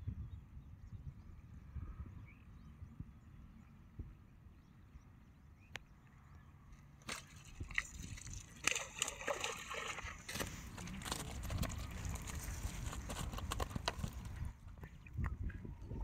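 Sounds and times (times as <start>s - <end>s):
sharp clicks and splats: 7.0s - 15.6s
water splashing and sloshing: 7.0s - 16.0s.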